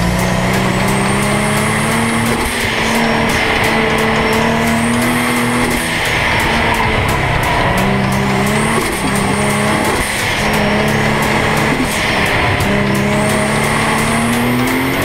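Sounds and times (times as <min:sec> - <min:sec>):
car engine driving hard: 0:00.0 - 0:15.0
song with steady beat: 0:00.0 - 0:15.0.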